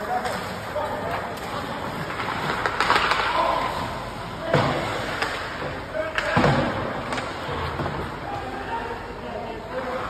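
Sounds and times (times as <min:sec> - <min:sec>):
hockey sticks and puck clacking: 0:00.0 - 0:08.4
puck slamming into boards: 0:06.1 - 0:08.0.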